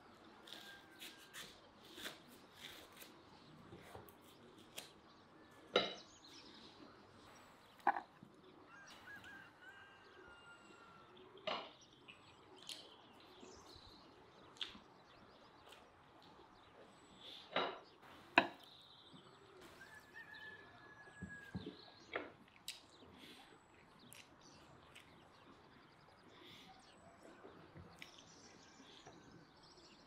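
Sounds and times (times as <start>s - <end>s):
chewing: 12.1s - 13.4s, 14.5s - 14.9s, 22.4s - 25.6s.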